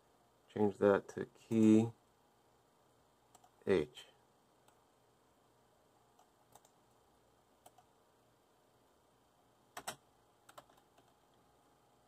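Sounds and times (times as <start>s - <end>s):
computer keystroke clicks: 6.2s - 6.8s, 7.6s - 7.9s, 9.8s - 11.2s.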